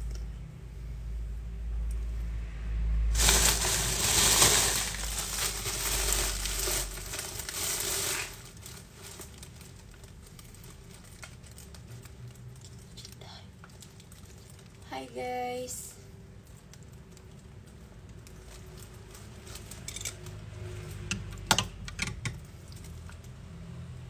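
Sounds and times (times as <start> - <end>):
loud crinkling rustle: 3.2 - 13.0, 16.4 - 20.4.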